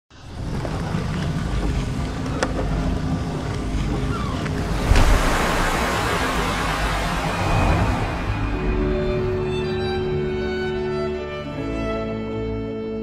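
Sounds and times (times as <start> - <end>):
surf-like rushing noise: 4.4 - 10.5
low sustained tone: 4.6 - 11.5
loud hit: 4.7 - 9.9.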